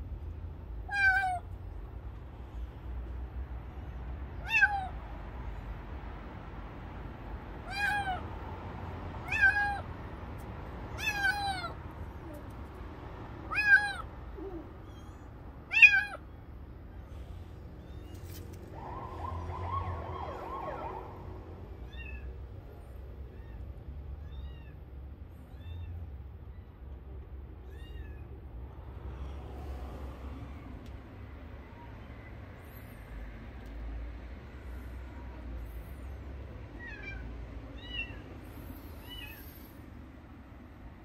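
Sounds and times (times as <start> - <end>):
kitten meowing: 0.9 - 1.5, 4.4 - 5.0, 7.6 - 8.2, 9.2 - 9.9, 10.9 - 12.5, 13.4 - 16.4, 21.8 - 22.3, 27.6 - 28.3, 36.8 - 38.2.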